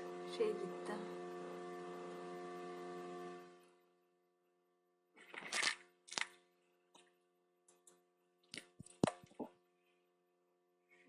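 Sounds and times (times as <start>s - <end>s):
steady electrical hum: 0.0s - 4.2s.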